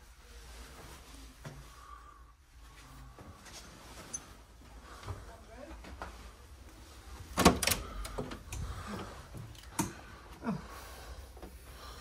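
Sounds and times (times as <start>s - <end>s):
door swinging open with knocks: 7.4s - 8.3s
door latch clicks: 7.4s - 8.4s.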